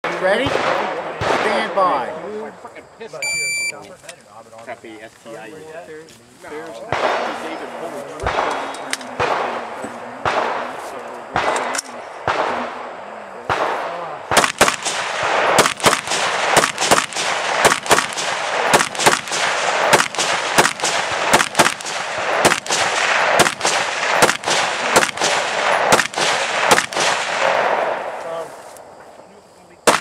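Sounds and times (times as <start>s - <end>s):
gunshots with echo: 0.0s - 2.0s, 6.9s - 7.6s, 8.2s - 28.2s.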